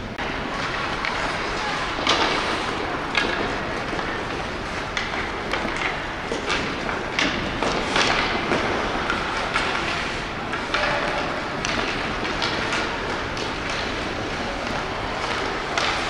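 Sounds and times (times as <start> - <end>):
hockey sticks and puck clacking: 0.1 - 16.0
players shouting: 0.2 - 6.6, 10.5 - 16.0
skates scraping on ice: 0.2 - 16.0.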